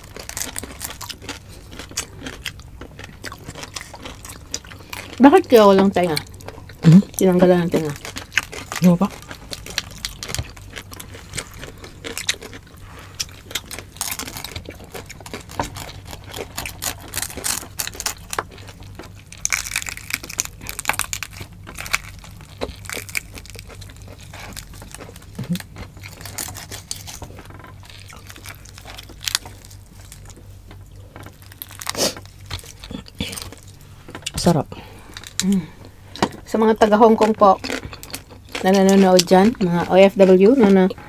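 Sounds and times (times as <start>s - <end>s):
crackles of meat and skin: 0.0s - 41.0s
hands tearing roast meat: 7.9s - 35.6s.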